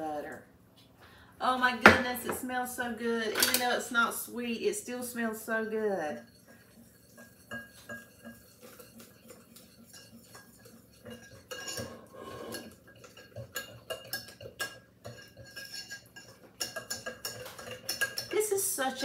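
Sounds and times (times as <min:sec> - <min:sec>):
whisk scraping glass bowl: 0:05.6 - 0:19.0.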